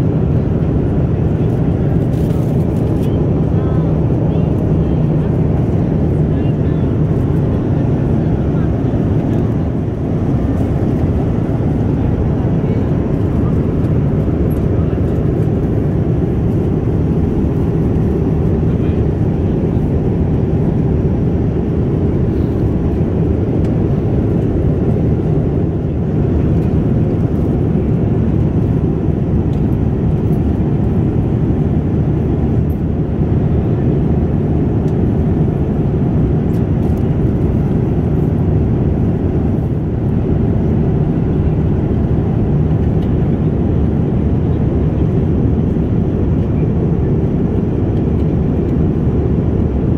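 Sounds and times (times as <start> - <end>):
jet engines rumbling: 0.0 - 49.9.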